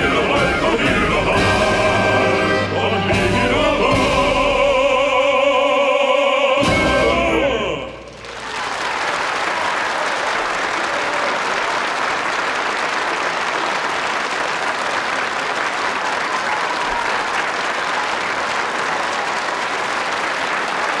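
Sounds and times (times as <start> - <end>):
audience applauding: 8.0 - 21.0.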